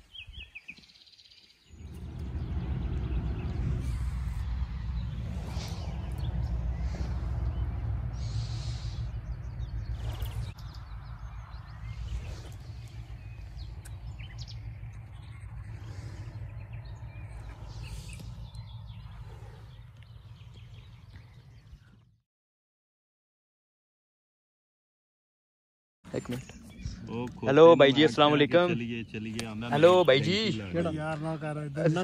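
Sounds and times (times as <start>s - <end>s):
steady low rumble: 1.7s - 21.8s.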